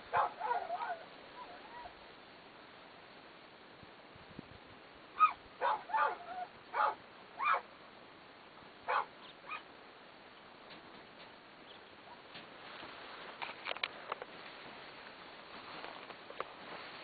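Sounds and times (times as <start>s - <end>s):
faint steady background noise: 0.0s - 17.0s
dog yipping and barking: 0.1s - 2.0s, 5.2s - 7.7s, 8.9s - 9.7s.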